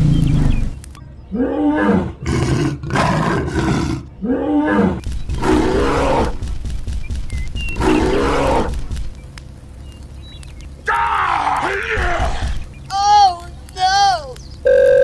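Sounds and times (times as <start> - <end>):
dinosaur roars: 1.3 - 6.4, 7.8 - 8.8
low rumble: 5.0 - 12.9.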